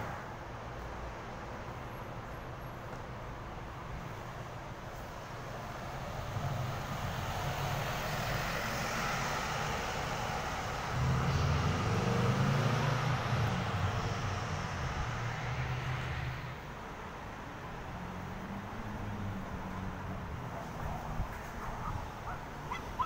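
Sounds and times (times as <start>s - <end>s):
bus engine hum: 0.0s - 23.0s
road noise: 0.0s - 23.0s
car passing: 5.4s - 23.0s.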